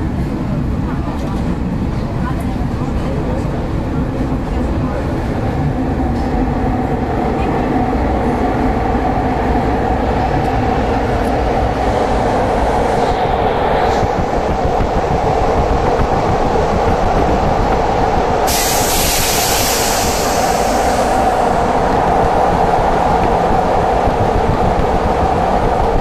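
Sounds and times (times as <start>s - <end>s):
electric train rumbling on track: 0.0s - 26.0s
high hiss: 18.4s - 21.8s.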